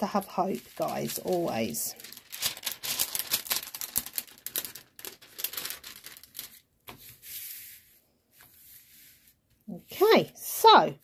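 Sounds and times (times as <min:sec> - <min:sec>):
plastic film crinkling: 0:00.2 - 0:06.7
soft rub on canvas: 0:07.0 - 0:10.3.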